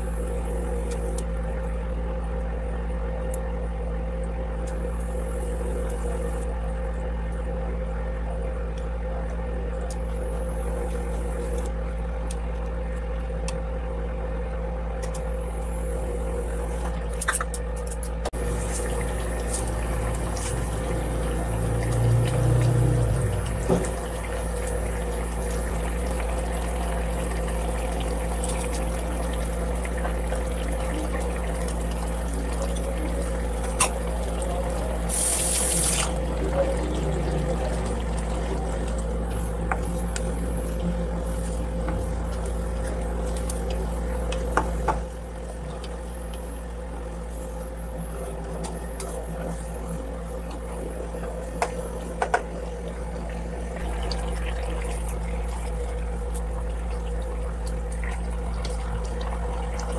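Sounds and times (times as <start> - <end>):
broth simmering with bubbling hiss: 0.0 - 59.9
cooktop low hum: 0.0 - 59.9.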